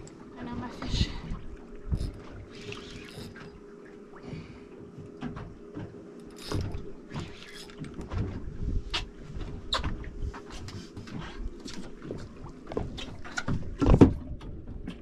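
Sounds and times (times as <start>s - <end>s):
faint steady hum: 0.0s - 15.0s
fishing reel gears clicking: 1.9s - 3.4s.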